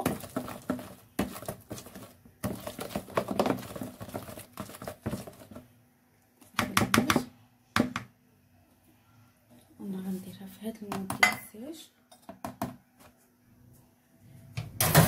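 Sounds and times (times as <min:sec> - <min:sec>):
whisk beating batter in a bowl: 0:00.0 - 0:05.6.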